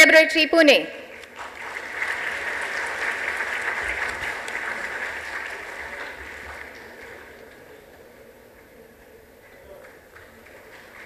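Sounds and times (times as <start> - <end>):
audience applauding: 1.2 - 8.3, 9.4 - 11.0.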